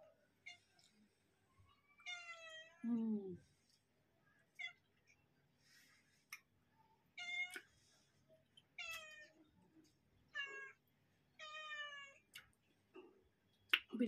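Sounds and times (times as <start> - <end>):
cat meowing: 1.8 - 2.8, 7.2 - 7.7, 8.8 - 9.4, 10.3 - 10.8, 11.4 - 12.3.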